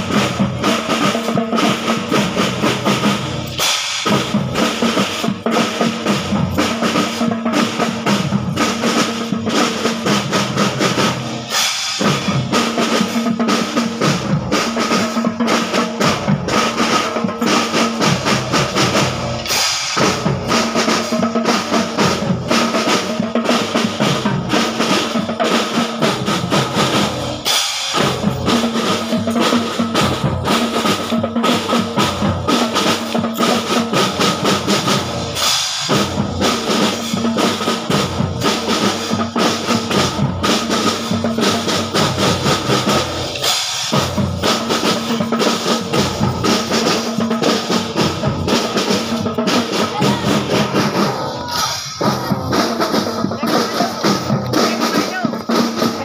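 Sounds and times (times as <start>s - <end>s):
marching drum band playing: 0.0s - 56.0s.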